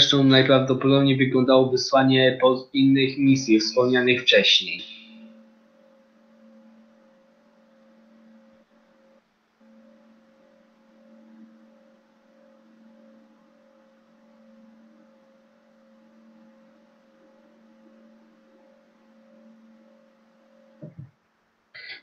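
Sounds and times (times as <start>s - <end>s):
low droning tones: 0.0s - 21.2s
soft hiss: 0.0s - 22.0s.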